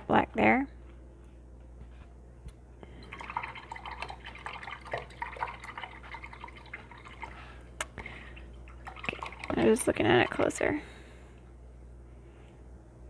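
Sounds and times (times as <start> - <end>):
brush splashing in water jar: 3.0 - 7.6, 8.4 - 10.6.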